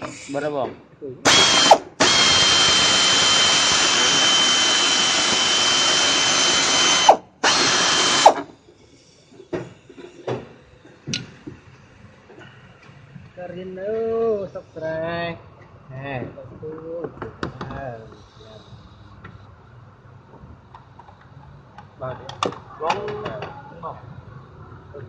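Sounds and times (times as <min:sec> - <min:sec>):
air ratchet hissing and whining: 0:01.3 - 0:09.2, 0:18.0 - 0:19.2.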